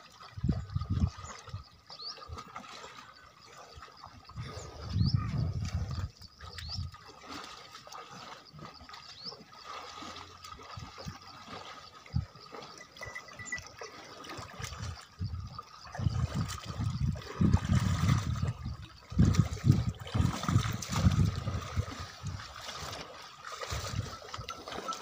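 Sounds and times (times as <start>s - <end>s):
animals sloshing through water: 0.0s - 25.0s.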